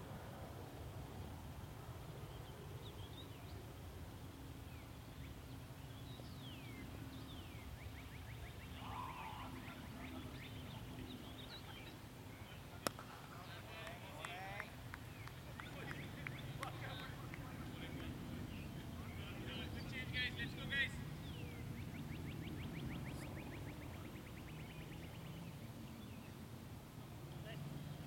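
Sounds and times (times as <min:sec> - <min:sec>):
faint steady hum: 0:00.0 - 0:28.0
birds chirping: 0:04.6 - 0:26.6.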